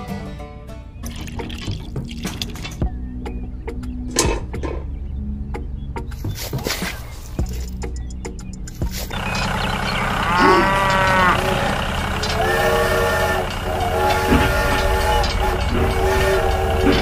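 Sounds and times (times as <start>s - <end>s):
low hum: 7.4s - 17.0s
toy train hoot: 9.2s - 17.0s
toy train horn blasts: 9.2s - 17.0s.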